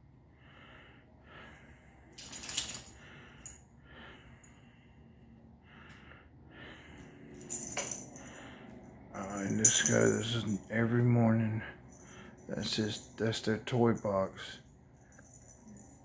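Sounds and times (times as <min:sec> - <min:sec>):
small metallic jingles: 0:02.1 - 0:03.7, 0:07.3 - 0:08.5, 0:09.2 - 0:16.0.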